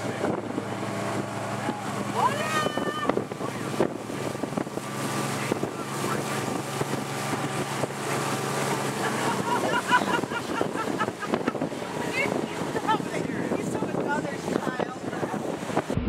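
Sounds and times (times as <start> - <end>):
motorboat engine running: 0.0 - 16.0
water rushing past hull: 0.0 - 16.0
wind buffeting microphone: 0.0 - 16.0.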